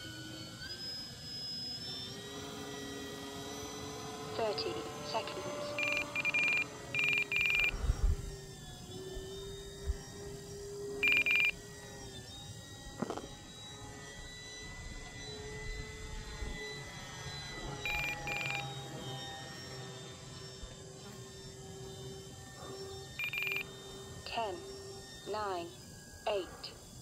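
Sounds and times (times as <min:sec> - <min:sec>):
model plane motor humming: 0:00.0 - 0:27.0
electronic beeping: 0:04.4 - 0:07.9, 0:11.0 - 0:11.7, 0:17.8 - 0:18.8, 0:23.2 - 0:25.8.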